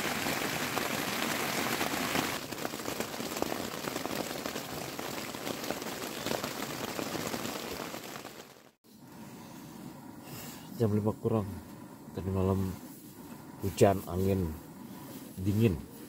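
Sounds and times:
steady rain falling: 0.0s - 8.8s.

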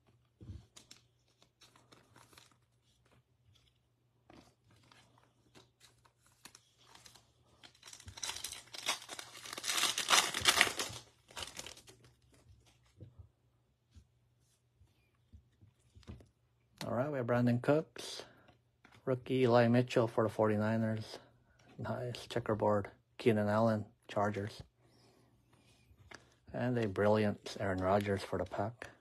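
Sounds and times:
soft handling of cards: 0.0s - 16.9s, 17.6s - 20.1s, 20.8s - 29.0s
foil wrapper tearing and crinkling: 5.6s - 12.2s.

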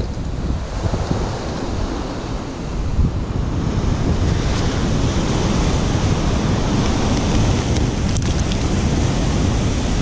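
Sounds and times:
surf breaking on beach: 0.0s - 10.0s
wind buffeting microphone: 0.0s - 10.0s.

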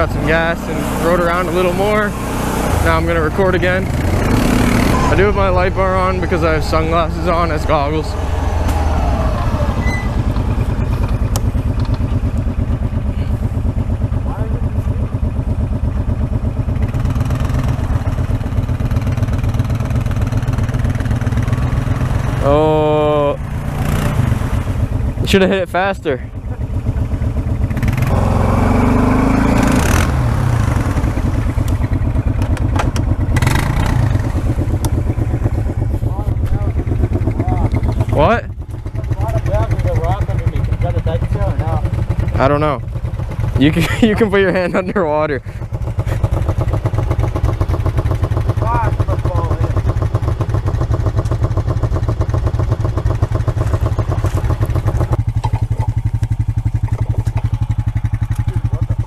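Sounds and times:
quad bike engine: 0.0s - 59.0s
sharp knocks and rattles: 31.3s - 44.9s, 45.5s - 59.0s.

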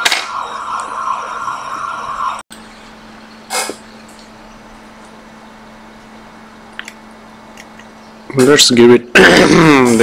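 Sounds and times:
air blowing hiss with whine: 0.0s - 2.4s.

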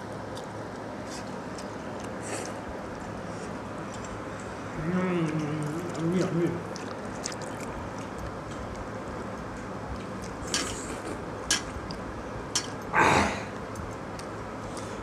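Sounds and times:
loud noisy sound: 12.9s - 13.5s.

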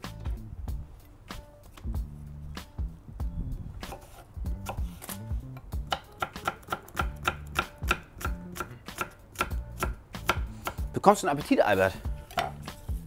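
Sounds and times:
knife chopping on wooden board: 5.7s - 10.9s, 12.3s - 12.7s.

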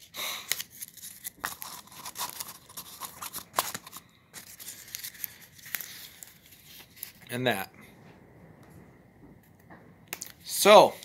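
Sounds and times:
paper sheets crinkling and clicking: 0.5s - 7.2s.

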